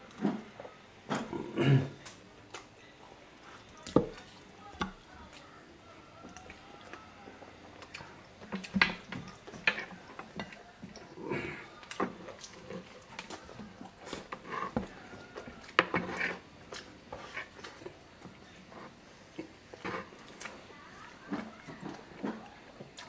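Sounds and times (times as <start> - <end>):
person chewing food: 6.2 - 23.0.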